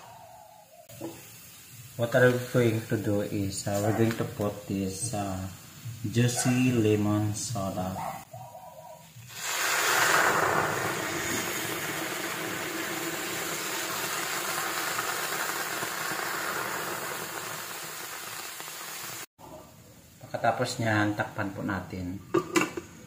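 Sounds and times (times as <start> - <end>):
liquid sizzling in hot pan: 0.9 - 7.4, 9.2 - 19.3.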